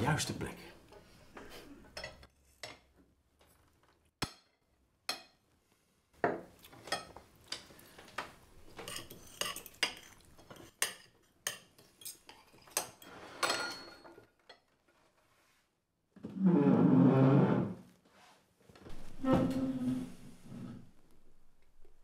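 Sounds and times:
cutlery clinking on plates: 8.7 - 14.7.

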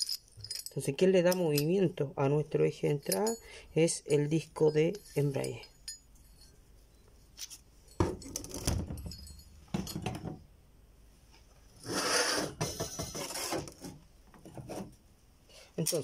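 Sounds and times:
metal parts knocking on table: 8.0 - 10.4
metal plate scraping across table: 11.8 - 13.8.

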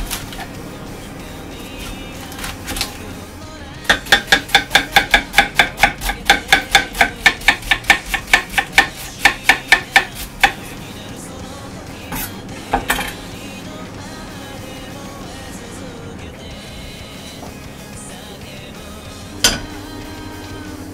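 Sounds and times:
knife chopping cabbage on wooden board: 3.8 - 10.9.

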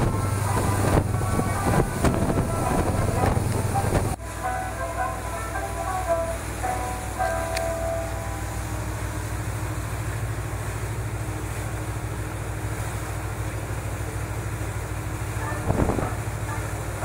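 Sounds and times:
wind on microphone: 0.0 - 4.2, 15.4 - 16.8
boat engines throbbing: 0.0 - 17.0
sea wash: 0.0 - 17.0.

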